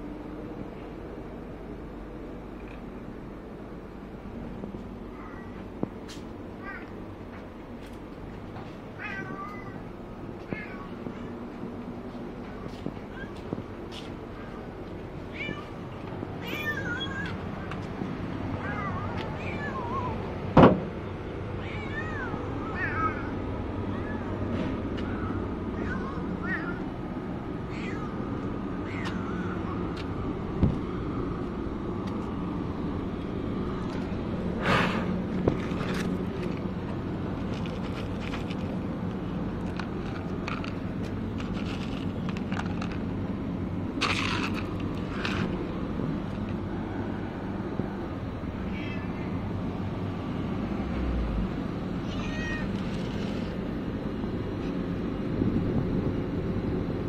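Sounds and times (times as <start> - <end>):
low background hum: 0.0 - 57.0
cats meowing: 5.1 - 5.6, 6.6 - 7.0, 8.9 - 11.5, 14.3 - 17.8, 18.6 - 20.3, 21.6 - 27.0, 27.6 - 30.0, 48.6 - 49.5, 52.0 - 53.2
cat kibble rattling in a tub: 39.6 - 43.2.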